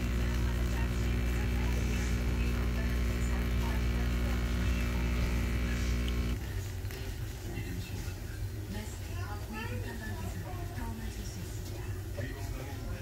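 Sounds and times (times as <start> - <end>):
espresso machine pump humming: 0.0 - 6.4.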